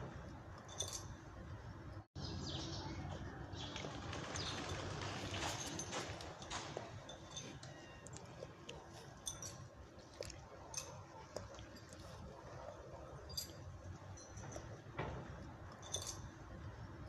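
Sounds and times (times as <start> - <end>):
dry leaves crackling under paws: 3.6 - 6.3.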